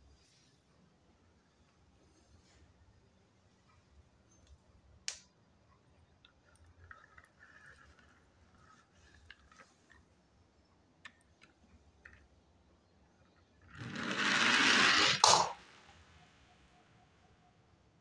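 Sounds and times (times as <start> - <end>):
toy car clicks and taps: 13.7 - 15.6.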